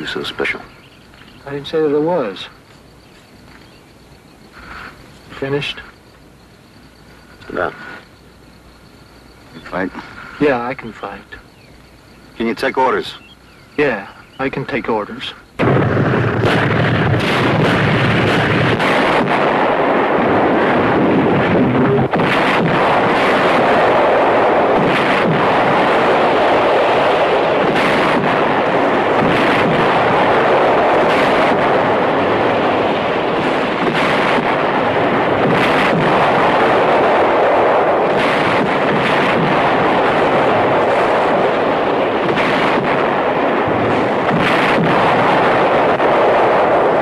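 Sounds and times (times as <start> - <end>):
continuous rumbling din: 0.0 - 47.0
shells exploding: 15.6 - 47.0.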